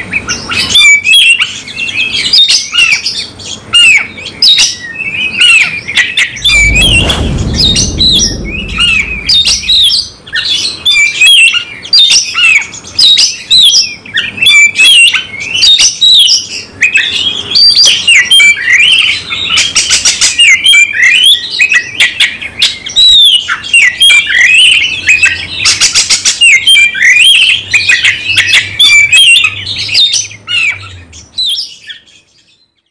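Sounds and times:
low rumbling thump: 6.3s - 10.2s.

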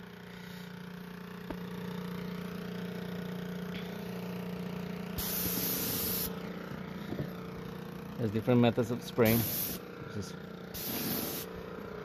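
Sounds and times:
paint sprayer humming: 0.1s - 12.0s
spray gun hissing: 5.2s - 6.4s, 9.2s - 9.8s, 10.8s - 11.6s.

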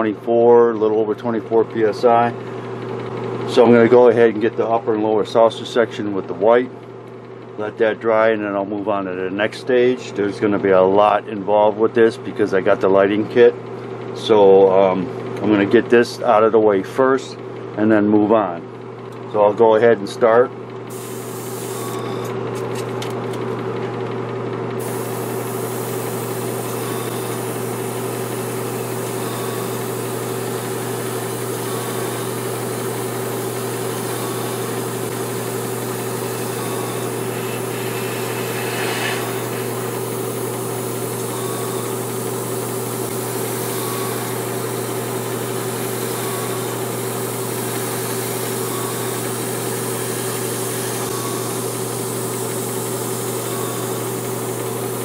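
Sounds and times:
air compressor humming: 0.0s - 17.9s, 20.4s - 55.0s
airbrush hissing: 20.9s - 21.8s, 24.8s - 55.0s.

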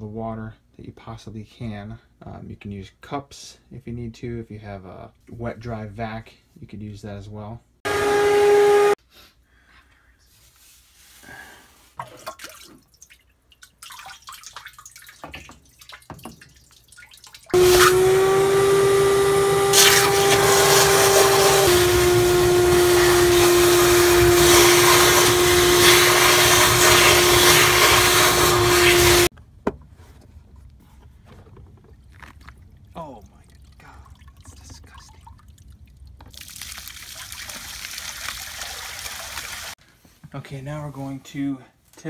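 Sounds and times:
shop vacuum whining: 7.8s - 9.0s, 17.6s - 29.3s.

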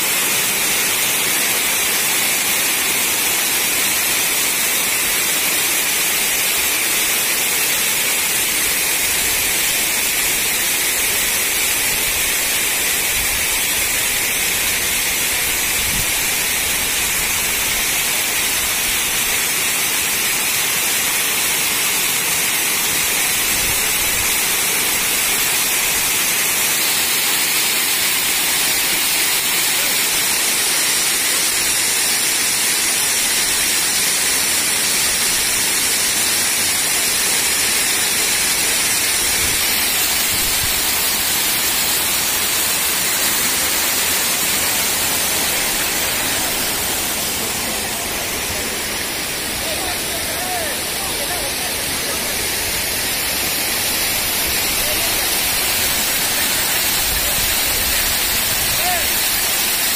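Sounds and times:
waterfall rushing: 0.0s - 59.9s.

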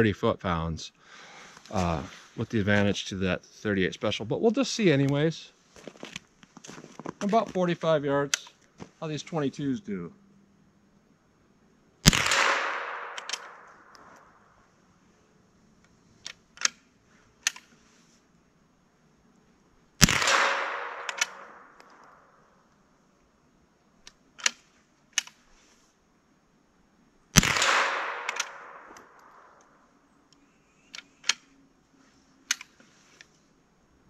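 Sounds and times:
rifle shot with echo: 12.0s - 13.9s, 20.0s - 21.8s, 27.4s - 29.5s
rifle action clicks: 12.1s - 14.3s, 16.2s - 16.8s, 20.0s - 22.2s, 24.0s - 24.6s, 25.2s - 25.4s, 27.4s - 29.7s, 30.9s - 31.5s.

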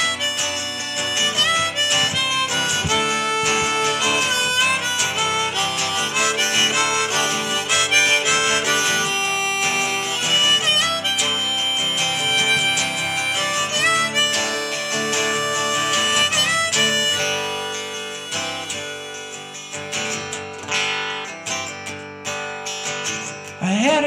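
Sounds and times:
harmonica solo: 0.0s - 23.5s
strummed acoustic guitar: 0.0s - 24.0s.

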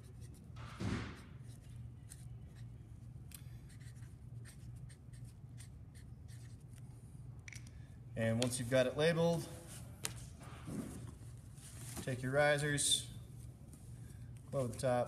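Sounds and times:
marker pen scratching: 0.0s - 2.8s, 3.6s - 6.8s.

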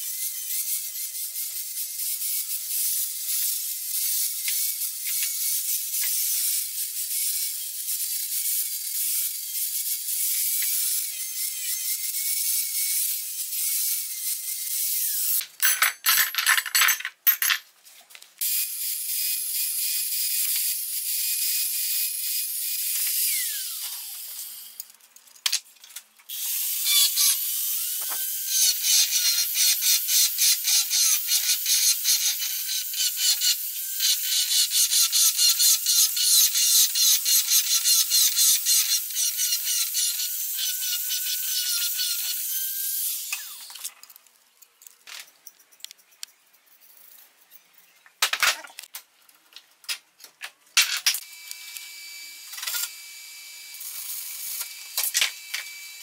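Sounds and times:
die grinder whining: 22.7s - 24.8s.

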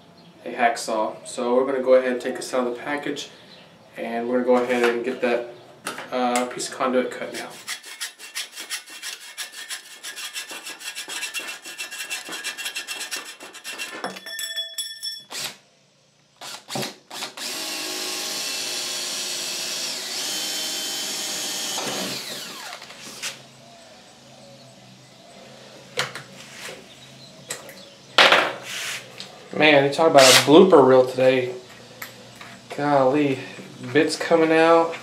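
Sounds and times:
hacksaw cutting metal tube: 7.3s - 14.2s
cordless drill boring into wood: 15.3s - 15.6s, 16.4s - 23.4s.

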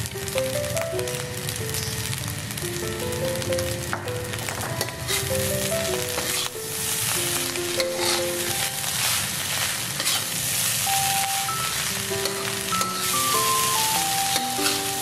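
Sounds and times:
light melody: 0.0s - 9.1s, 10.9s - 15.0s
rice sizzling in a wok: 0.0s - 15.0s
metal spatula stirring: 4.7s - 15.0s.

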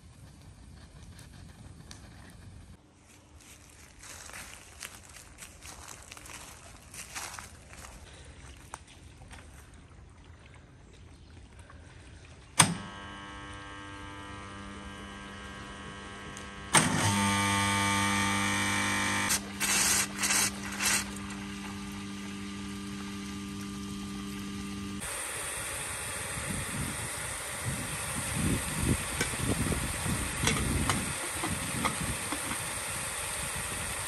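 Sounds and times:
water pump motor hum: 4.7s - 34.0s
short bursts of rushing noise: 19.6s - 21.2s.

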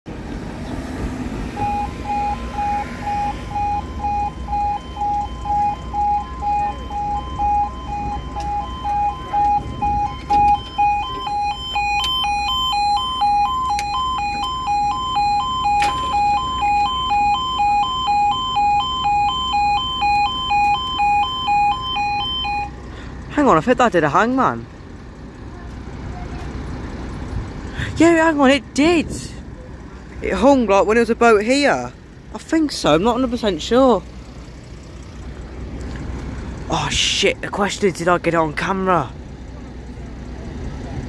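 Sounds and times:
higher-pitched two-tone alarm: 1.5s - 22.8s
two-tone electronic alarm: 1.5s - 22.8s.

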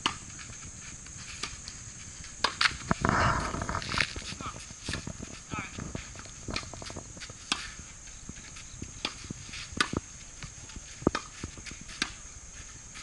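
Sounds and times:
steady high hiss: 0.0s - 13.0s
tennis ball struck and bouncing: 7.4s - 7.8s, 9.0s - 10.0s, 10.9s - 12.2s.

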